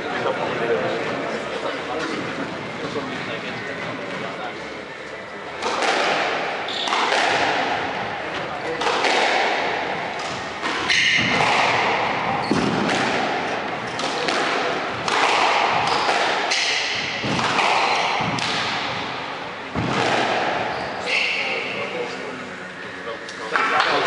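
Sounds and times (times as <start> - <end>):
squash ball hitting rackets: 5.5 - 21.4
shoe squeaks: 6.6 - 7.1, 17.8 - 18.2, 20.7 - 22.0.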